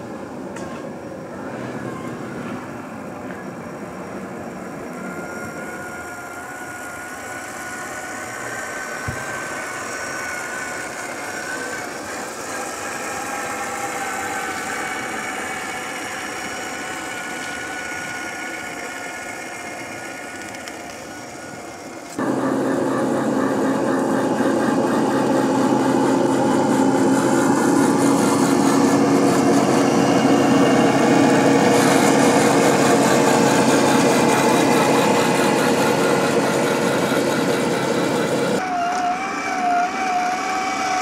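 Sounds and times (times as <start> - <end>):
rc truck drivetrain hum: 0.0 - 41.0.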